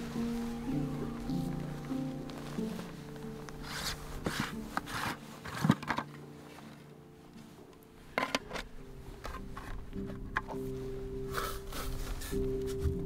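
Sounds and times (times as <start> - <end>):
tent zip and fabric rustle: 0.0 - 7.6, 8.6 - 13.0
soft ambient music: 0.0 - 13.0
plastic lid clicking on gravel: 8.2 - 10.6.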